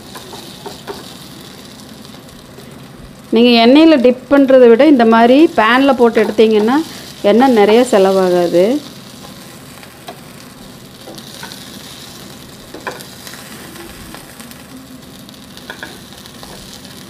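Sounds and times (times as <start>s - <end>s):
cutlets sizzling in oil: 0.0s - 17.0s
utensils clicking against pan: 0.1s - 1.2s, 6.0s - 6.8s, 15.7s - 16.7s.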